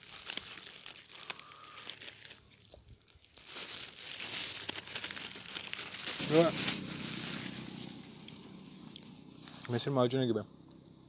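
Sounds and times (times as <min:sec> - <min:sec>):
food wrapper crinkling: 0:00.0 - 0:08.4.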